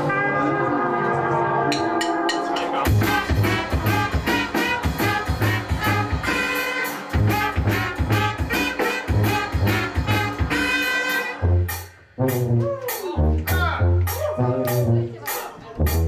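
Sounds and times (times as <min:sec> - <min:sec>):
brass band playing: 0:00.0 - 0:16.0
snare and bass drum beat: 0:02.0 - 0:11.4.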